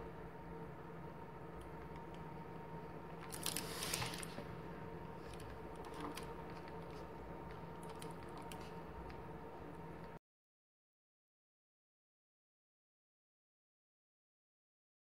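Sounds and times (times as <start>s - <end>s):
faint steady hum: 0.0s - 10.2s.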